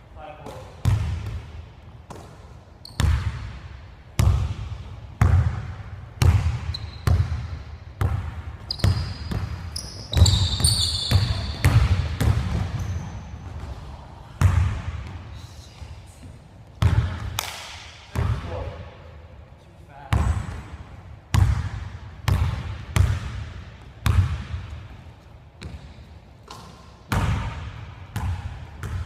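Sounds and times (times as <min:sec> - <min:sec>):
sneakers squeaking on floor: 0:02.8 - 0:03.4, 0:06.4 - 0:07.5, 0:08.6 - 0:13.9
basketball bouncing on wooden floor: 0:05.2 - 0:13.0, 0:16.8 - 0:17.3, 0:21.3 - 0:24.7, 0:28.2 - 0:29.0.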